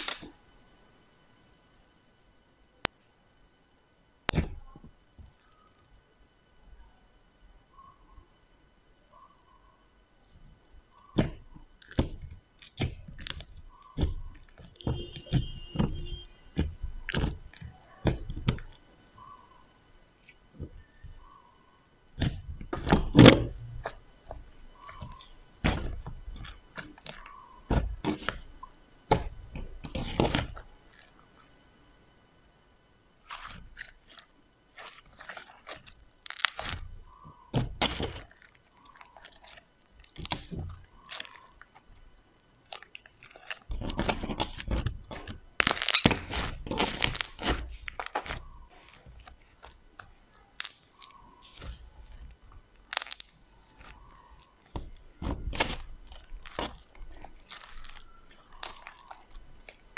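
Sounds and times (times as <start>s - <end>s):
slime squished by hand: 33.2s - 41.9s, 42.6s - 59.9s
slime clicks and pops: 52.8s - 53.3s.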